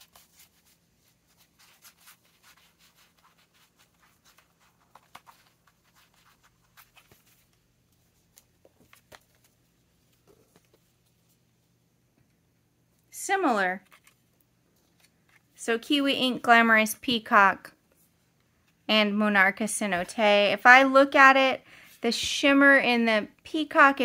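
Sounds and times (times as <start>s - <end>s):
paper cards rustling: 0.0s - 11.4s, 13.8s - 15.6s.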